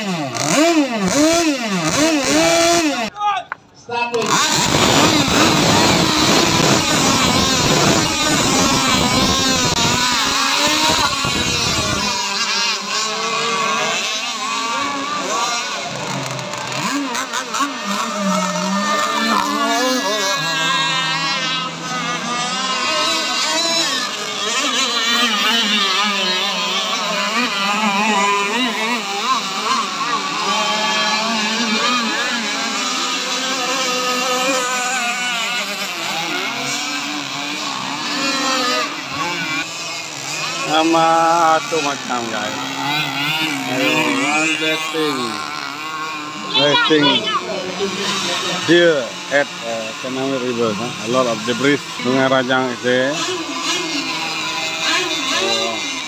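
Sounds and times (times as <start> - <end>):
model powerboat engines whining: 0.0 - 56.0.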